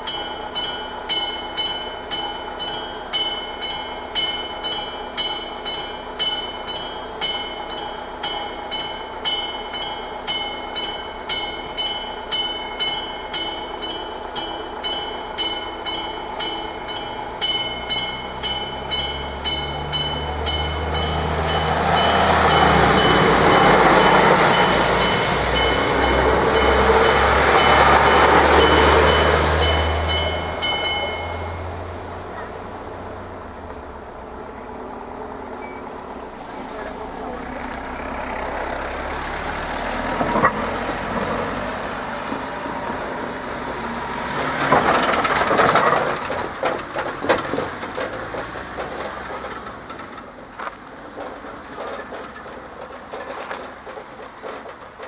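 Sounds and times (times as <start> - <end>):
level crossing warning bell: 0.0 - 32.5
passing train engine and wheels: 0.0 - 55.0.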